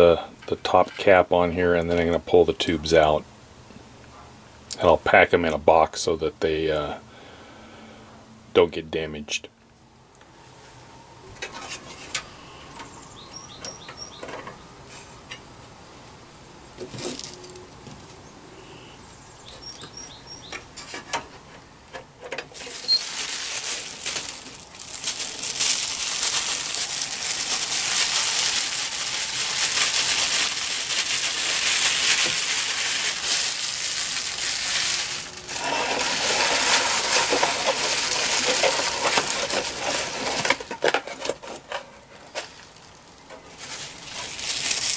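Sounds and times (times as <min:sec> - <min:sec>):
bubble wrap crinkling: 0:22.5 - 0:44.9.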